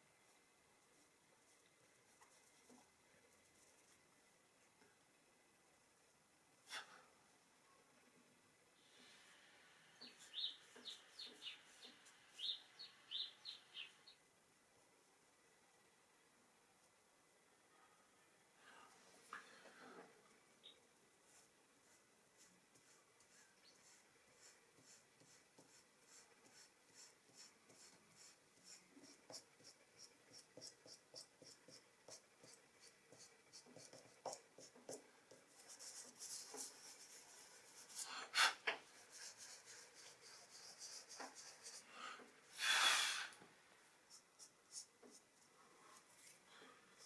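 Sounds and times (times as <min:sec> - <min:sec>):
pastel scratching on paper: 0:21.3 - 0:38.2, 0:38.8 - 0:41.9, 0:44.1 - 0:45.3.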